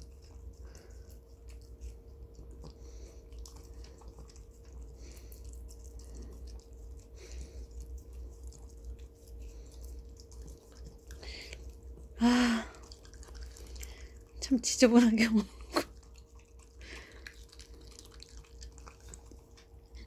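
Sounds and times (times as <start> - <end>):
dog chewing clicks: 16.0 - 19.8.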